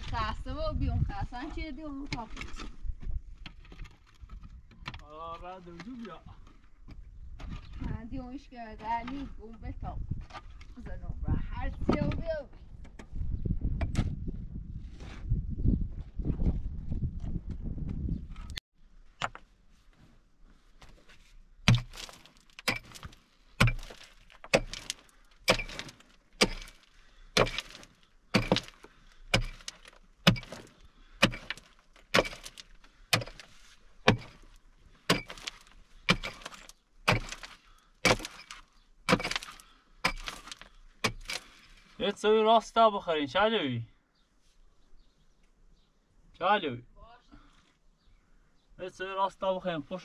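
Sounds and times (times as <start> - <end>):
digging tool striking stony ground: 21.6 - 41.6.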